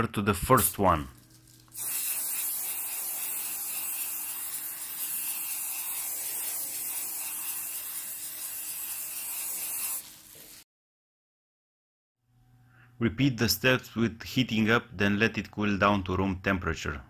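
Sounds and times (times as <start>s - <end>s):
aerosol can spraying: 1.7s - 10.6s.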